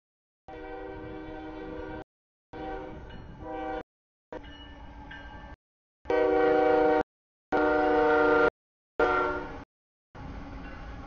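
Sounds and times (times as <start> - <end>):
locomotive air horn blasts: 0.5 - 3.8, 6.1 - 9.6.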